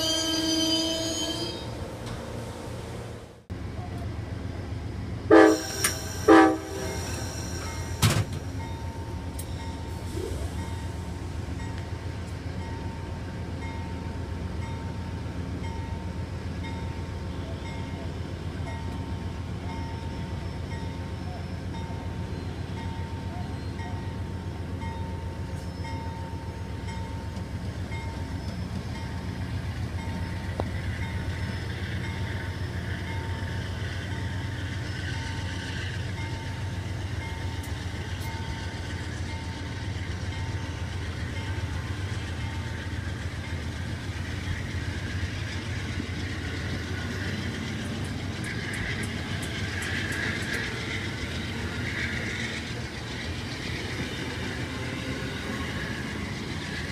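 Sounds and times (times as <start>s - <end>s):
train wheels rumbling on rails: 0.0s - 56.9s
wheel squeal: 28.0s - 29.4s.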